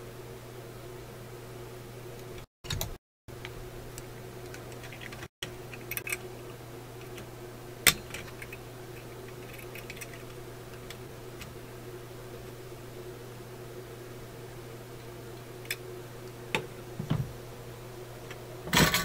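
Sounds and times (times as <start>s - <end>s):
steady electrical hum: 0.0s - 19.0s.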